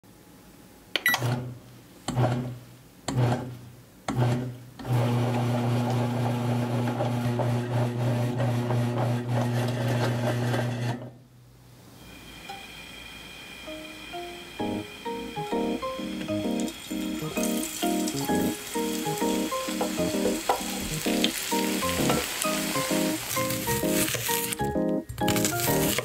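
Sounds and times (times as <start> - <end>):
bread machine motor humming: 4.1 - 11.1, 12.2 - 26.0.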